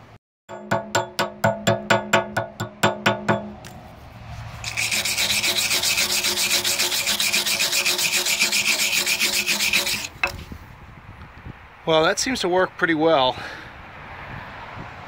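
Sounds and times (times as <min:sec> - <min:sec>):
chipping hammer knocking on metal: 0:00.5 - 0:03.6
wire brush scrubbing metal: 0:04.4 - 0:10.4.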